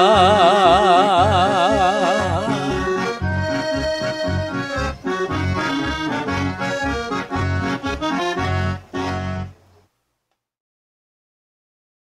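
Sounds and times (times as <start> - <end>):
solo accordion playing: 0.0 - 9.6.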